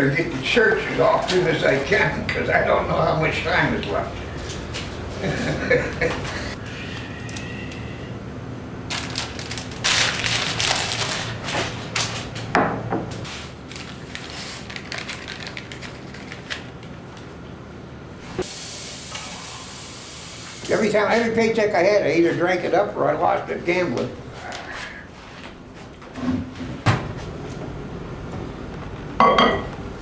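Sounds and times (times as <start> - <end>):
dishes and cup clinking: 29.2 - 29.7.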